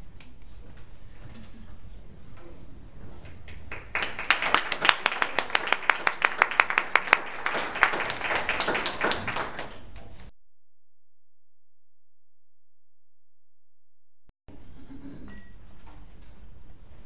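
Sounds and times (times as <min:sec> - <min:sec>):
loud close claps: 0:03.3 - 0:10.3
audience applauding: 0:03.5 - 0:10.0.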